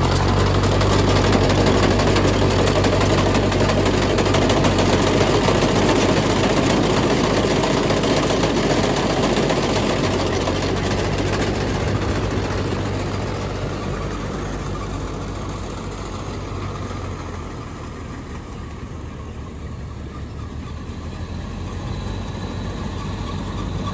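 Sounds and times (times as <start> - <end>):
combine harvester running: 0.0 - 23.9
tractor diesel engine: 0.0 - 23.9.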